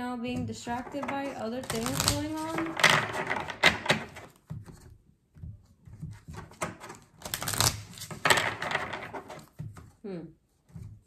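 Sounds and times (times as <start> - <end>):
cards being shuffled: 0.7 - 5.0, 5.7 - 10.0.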